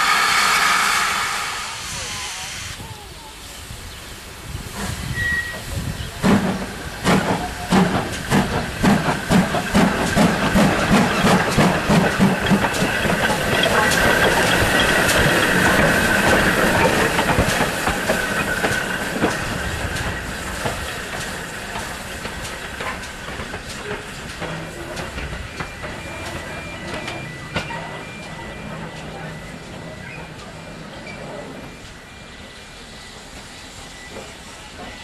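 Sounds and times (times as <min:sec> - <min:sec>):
steam hissing: 0:00.0 - 0:35.0
steam engine exhaust beats: 0:03.4 - 0:30.6
clanking locomotive motion: 0:03.6 - 0:35.0.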